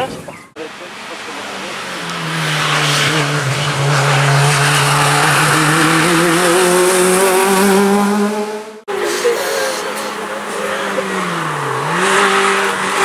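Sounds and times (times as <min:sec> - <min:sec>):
race car engine at high revs: 0:00.6 - 0:09.0, 0:09.8 - 0:13.0.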